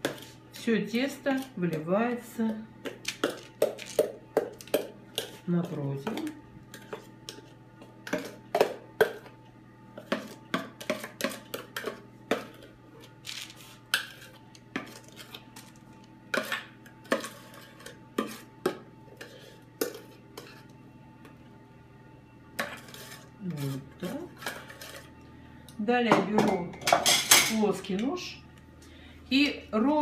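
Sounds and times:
metal utensil scraping a pot: 0:16.4 - 0:18.5, 0:22.6 - 0:25.1.

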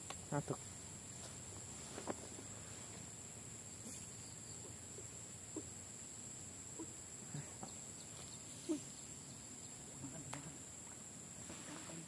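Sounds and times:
faint animal calls: 0:06.6 - 0:10.4.

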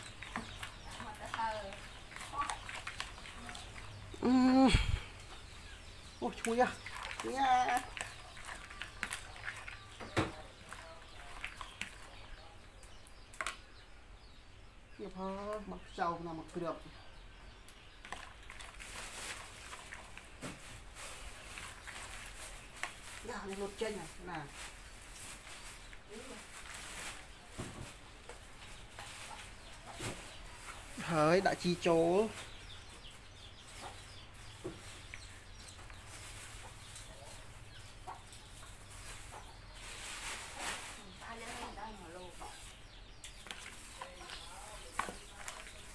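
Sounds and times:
wet salad squelching: 0:00.0 - 0:13.6, 0:17.6 - 0:27.3, 0:42.7 - 0:45.9
chickens clucking: 0:26.9 - 0:45.9.

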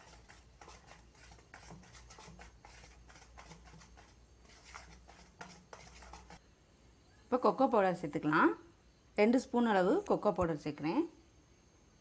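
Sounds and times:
utensil stirring batter in bowl: 0:00.0 - 0:06.4.

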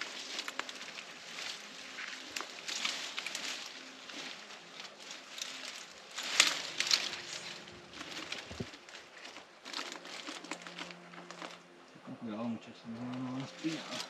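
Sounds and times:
footsteps crunching on trail: 0:00.0 - 0:11.9, 0:12.8 - 0:14.0.

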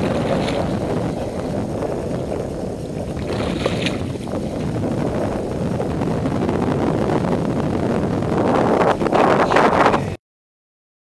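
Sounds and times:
fish splashing in water: 0:00.0 - 0:05.6
wind buffeting microphone: 0:00.0 - 0:10.2.

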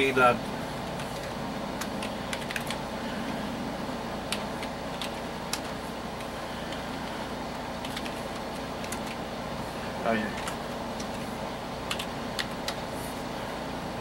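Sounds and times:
background hum: 0:00.0 - 0:14.0
keyboard keystrokes: 0:01.0 - 0:02.8, 0:07.8 - 0:09.2.

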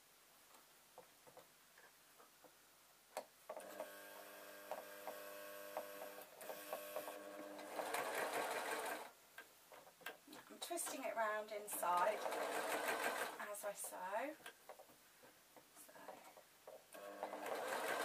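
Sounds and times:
sewing machine stitching: 0:03.6 - 0:09.1, 0:11.7 - 0:13.5, 0:17.0 - 0:18.0.

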